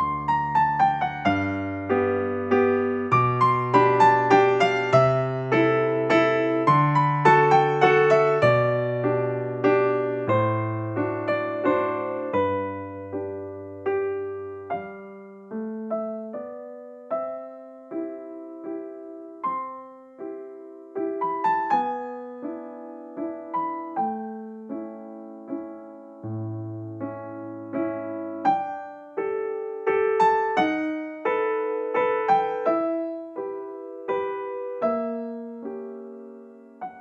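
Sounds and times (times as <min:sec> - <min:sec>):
slow piano melody: 0:00.0 - 0:37.0.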